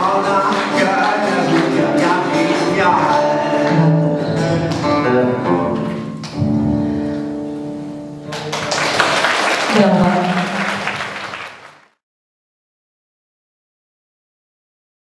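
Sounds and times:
man singing: 0.0 - 5.8
instrumental accompaniment: 0.0 - 9.1.

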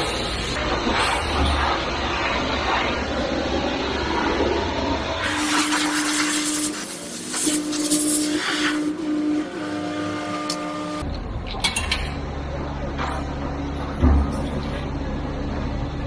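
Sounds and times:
steady hum: 0.0 - 16.0
pressure washer spray hissing: 5.2 - 9.0.

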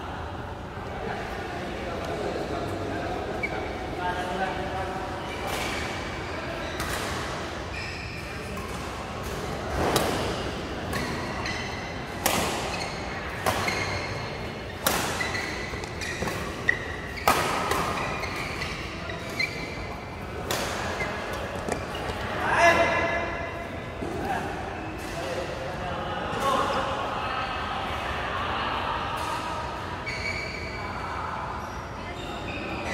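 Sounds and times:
court shoes squeaking: 3.1 - 4.3, 5.1 - 23.3, 30.0 - 32.9
rackets hitting shuttlecock: 12.1 - 14.0, 14.7 - 18.9.

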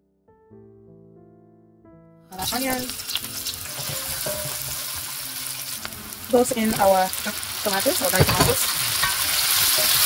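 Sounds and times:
onions sizzling in hot oil: 2.4 - 10.0.

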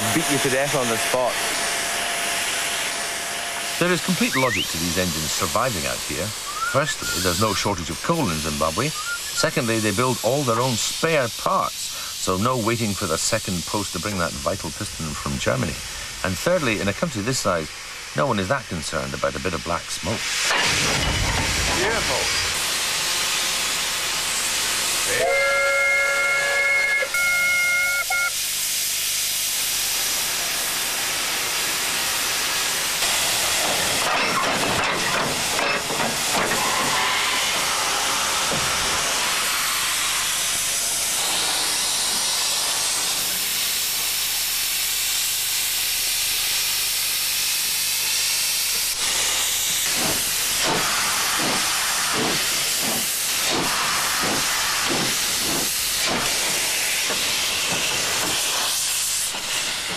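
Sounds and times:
rhythmic locomotive puffs: 0.0 - 59.9
steam hissing: 0.0 - 59.9
steam whistle chord: 25.0 - 28.5.

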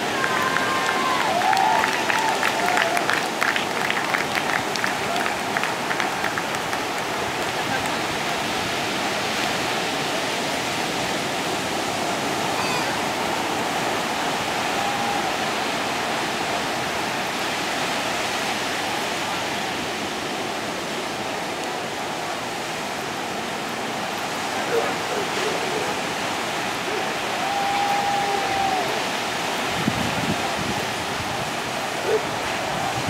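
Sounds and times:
people clapping: 0.0 - 8.4
ocean surf breaking: 0.0 - 33.0.

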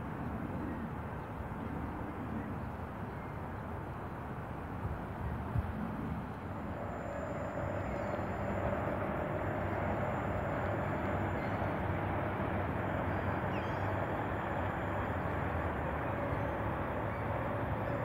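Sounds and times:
distant motor rumble: 6.1 - 18.0
steady hum: 6.2 - 18.0.

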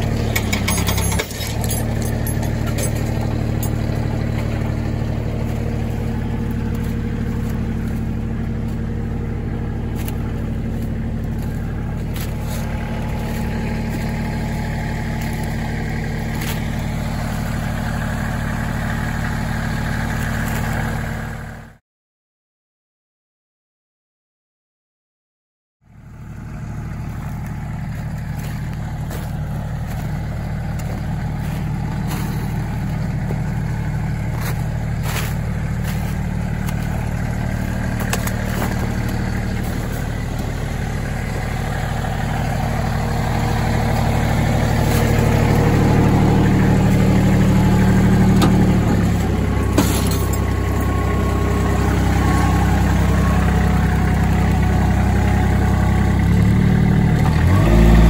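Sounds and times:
tractor diesel engine running: 0.0 - 21.8, 25.8 - 58.0.

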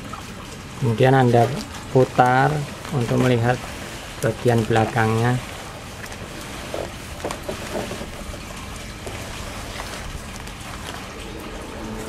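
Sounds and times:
low rumble: 10.8 - 12.0.

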